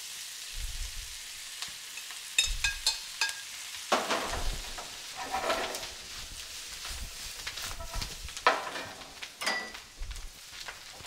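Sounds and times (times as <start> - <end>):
food sizzling in a pan: 0.0 - 11.0
metal spoon clinking: 2.0 - 3.5, 9.4 - 9.8
spoon scraping and stirring: 4.7 - 5.9, 7.5 - 9.7.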